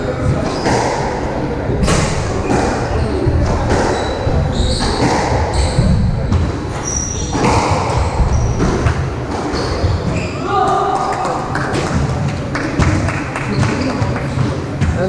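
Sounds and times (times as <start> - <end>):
shoes squeaking: 2.4 - 11.0.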